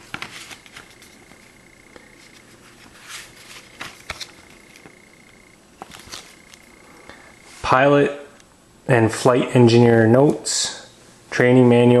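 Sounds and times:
paper rustles: 0.0 - 1.6, 2.2 - 5.0, 5.8 - 6.6
paper pages turning: 0.0 - 6.7.

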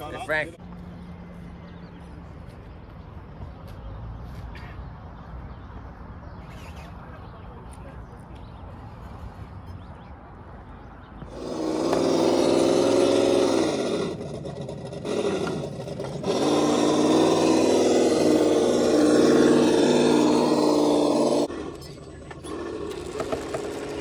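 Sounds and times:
rc truck motor hum: 11.3 - 24.0.

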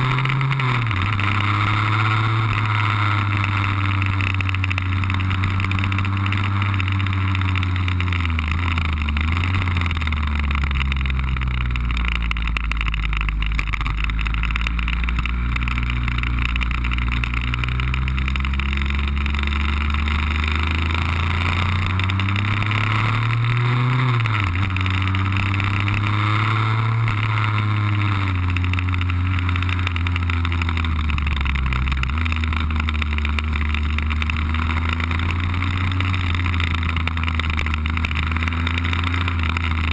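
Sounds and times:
two-stroke scooter engine running: 0.0 - 39.9.

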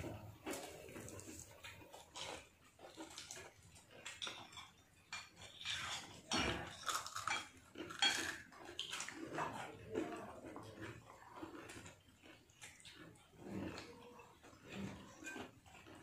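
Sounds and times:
plates and spoons clinking: 4.0 - 10.2, 13.8 - 16.0.

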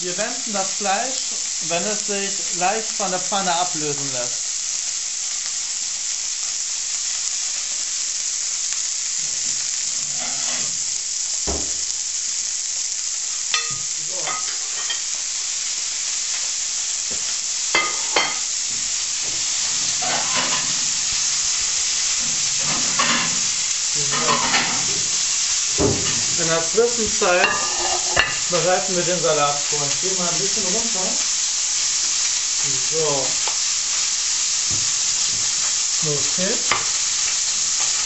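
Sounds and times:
beef searing in a frying pan: 0.0 - 38.0.

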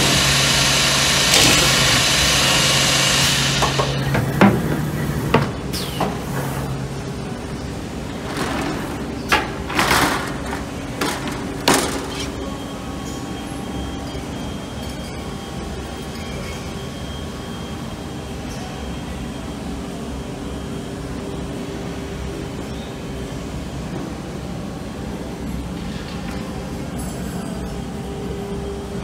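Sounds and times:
pneumatic hissing bursts: 0.0 - 6.7
machine hum with faint whine: 0.0 - 29.0.

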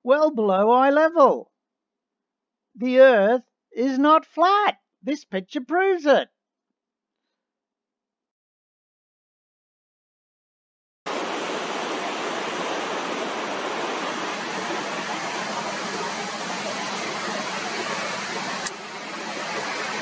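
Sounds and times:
sea surf rushing: 11.1 - 20.0.

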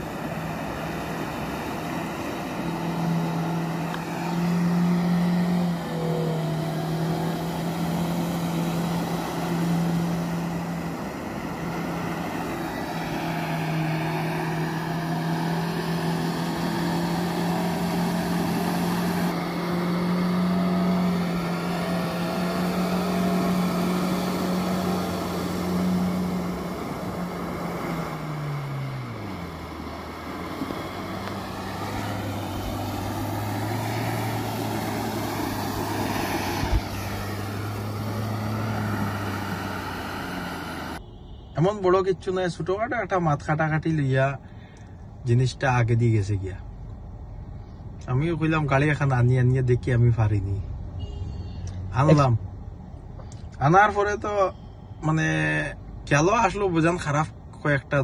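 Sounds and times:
engine revving high: 0.0 - 41.0
wheels churning through mud: 0.0 - 41.0.

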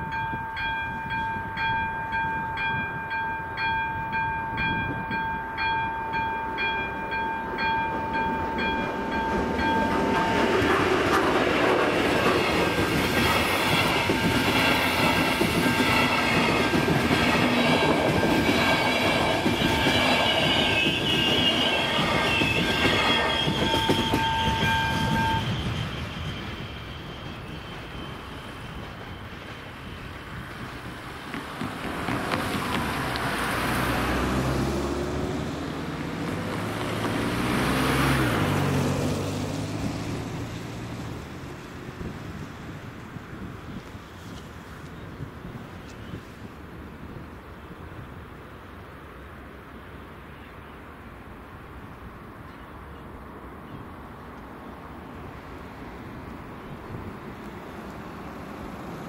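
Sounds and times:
level crossing bell ringing: 0.0 - 10.4
train wheels clattering on rails: 0.0 - 34.0
cars driving past: 30.8 - 42.8.

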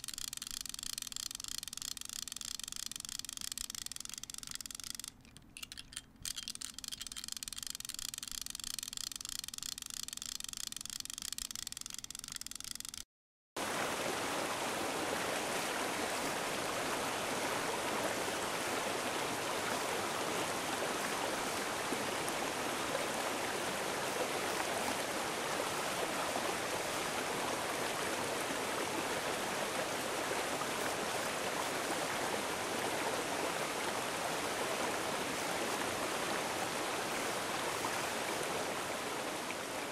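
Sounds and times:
running water rushing: 13.6 - 39.9.

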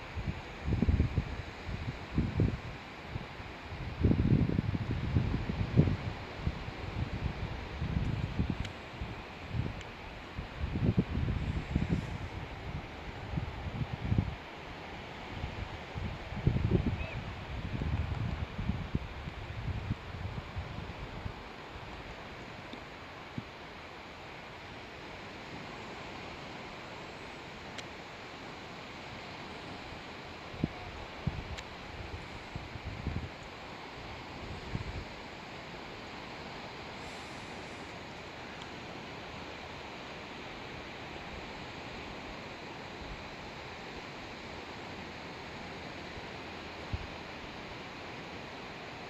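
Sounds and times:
steady hiss: 0.0 - 49.0
wind: 0.0 - 49.0
faint click: 27.7 - 27.9.

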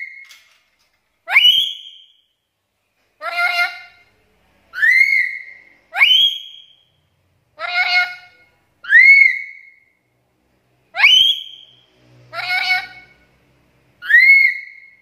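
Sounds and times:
parrot whistling calls: 1.3 - 2.2, 4.8 - 6.8, 7.6 - 9.8, 11.0 - 13.2, 14.0 - 15.0.

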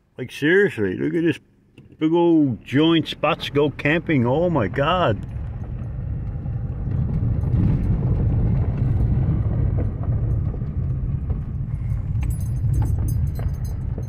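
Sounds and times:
car rumbling inside cabin: 0.2 - 14.0
gravel crunching under wheels: 0.2 - 14.0.

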